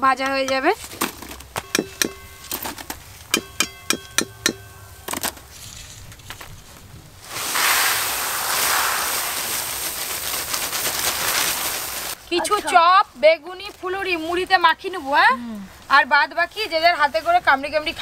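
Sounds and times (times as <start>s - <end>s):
metal spoon knocking on wok: 1.6s - 2.3s, 3.3s - 4.7s
puffed rice pouring onto paper: 7.2s - 12.2s.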